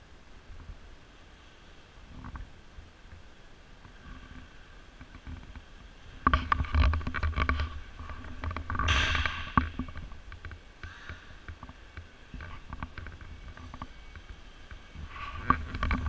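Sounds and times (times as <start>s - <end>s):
clicks and knocks: 6.2s - 13.9s.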